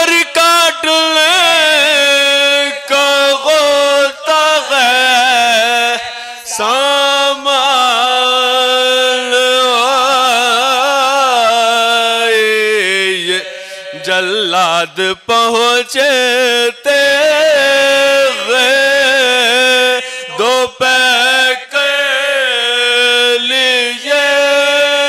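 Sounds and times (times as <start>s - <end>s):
men chanting in unison: 0.0s - 25.0s.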